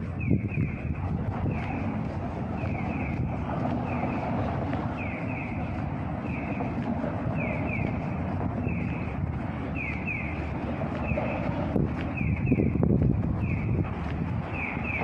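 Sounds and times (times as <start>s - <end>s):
road traffic rumble: 0.0s - 15.0s
pedestrian crossing signal chirping: 0.2s - 15.0s.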